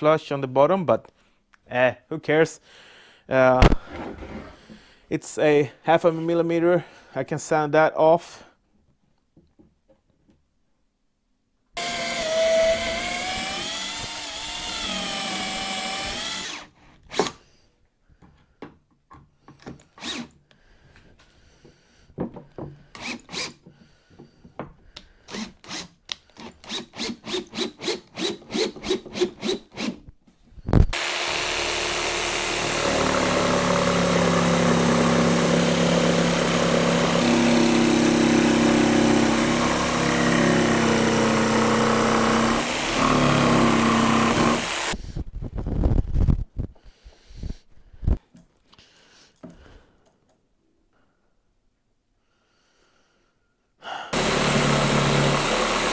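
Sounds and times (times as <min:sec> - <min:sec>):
corded power tool running: 0:11.8 - 0:16.7, 0:30.9 - 0:45.0, 0:54.2 - 0:55.9
cordless drill running: 0:11.8 - 0:17.3, 0:20.0 - 0:20.3, 0:23.0 - 0:23.5, 0:30.9 - 0:45.0, 0:54.2 - 0:55.9.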